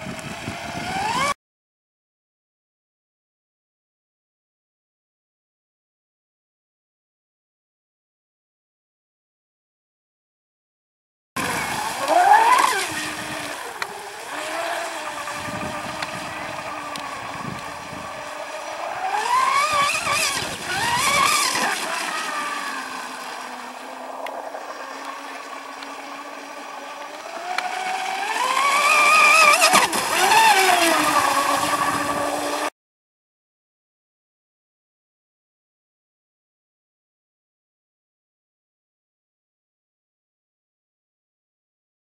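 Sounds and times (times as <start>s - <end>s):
model boat motor whine: 0.0s - 1.4s, 11.4s - 32.7s.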